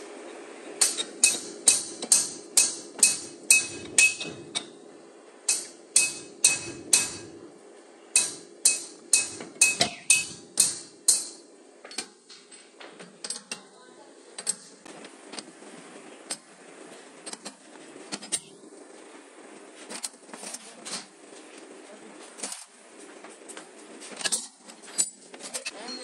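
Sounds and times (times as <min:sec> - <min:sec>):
metal-on-metal strikes ringing: 0:00.8 - 0:04.4, 0:05.5 - 0:07.4, 0:08.2 - 0:11.5.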